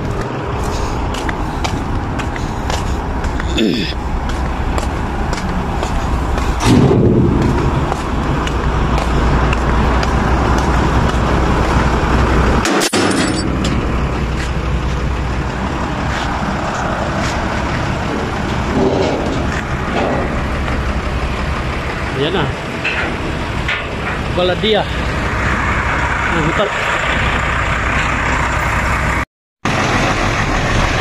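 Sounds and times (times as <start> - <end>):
diesel truck engine idling: 0.0 - 12.6, 13.4 - 31.0
traffic noise: 0.0 - 31.0.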